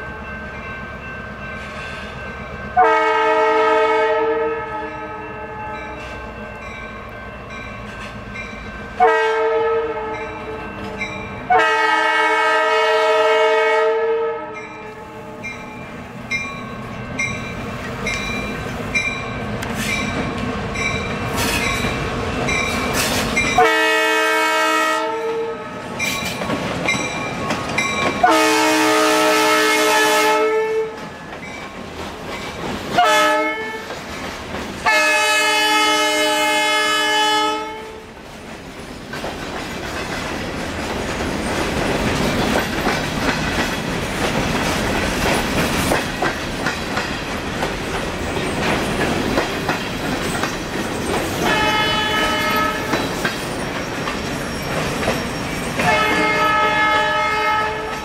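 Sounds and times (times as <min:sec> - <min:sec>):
locomotive horn blasts: 0:02.8 - 0:05.6, 0:09.0 - 0:10.6, 0:11.5 - 0:15.4, 0:23.6 - 0:25.8, 0:28.2 - 0:31.0, 0:33.0 - 0:33.9, 0:34.8 - 0:38.0, 0:51.4 - 0:53.0, 0:55.8 - 0:58.0
train wheels clicking over rail joints: 0:16.2 - 0:23.6, 0:25.9 - 0:28.4, 0:30.9 - 0:33.0, 0:33.8 - 0:35.1, 0:38.2 - 0:56.6.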